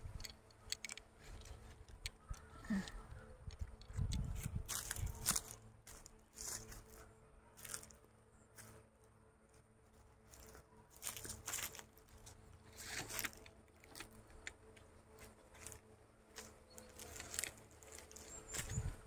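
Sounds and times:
faint crackling and rustling: 0:00.0 - 0:19.0
scattered clicks: 0:00.2 - 0:04.4.

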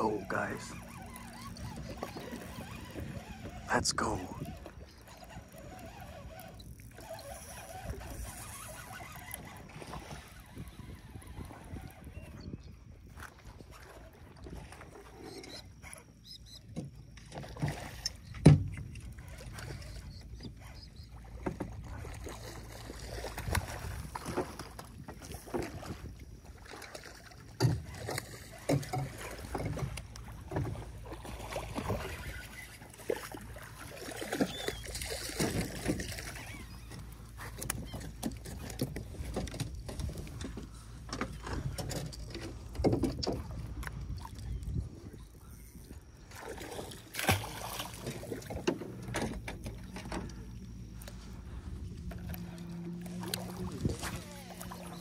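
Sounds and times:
knocks and thumps on a boat: 0:16.5 - 0:45.2, 0:46.2 - 0:55.0.

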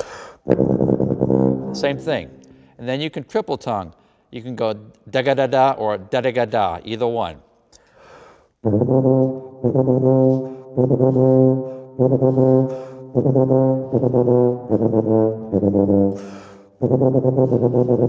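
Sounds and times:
quick breaths: 0:00.0 - 0:00.5, 0:02.5 - 0:02.8, 0:04.0 - 0:04.3, 0:07.7 - 0:08.6, 0:12.6 - 0:13.1, 0:16.2 - 0:16.8
tuba fast repeated low notes: 0:00.4 - 0:03.0, 0:08.6 - 0:18.0.

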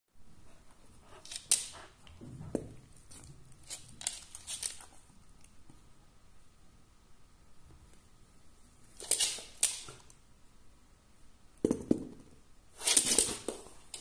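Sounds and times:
dog claws clicking on wooden floor: 0:01.2 - 0:01.9, 0:02.5 - 0:05.1, 0:09.0 - 0:10.2.

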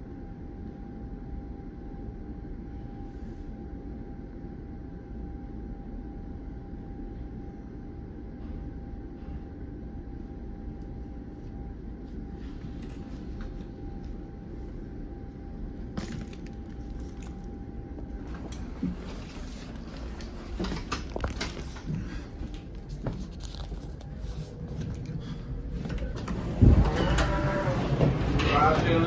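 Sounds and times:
footsteps with clicks and rattles: 0:16.0 - 0:29.0
railcar interior rumble: 0:16.8 - 0:29.0.

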